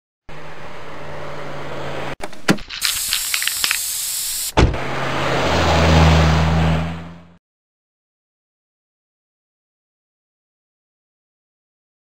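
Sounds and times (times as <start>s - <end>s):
car engine hum: 0.3s - 7.4s
spray can hiss: 2.7s - 4.6s.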